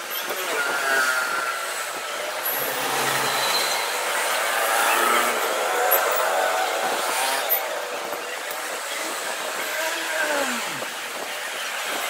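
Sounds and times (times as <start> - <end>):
steady rushing background noise: 0.0 - 12.0
falling metal squeal: 2.6 - 4.2.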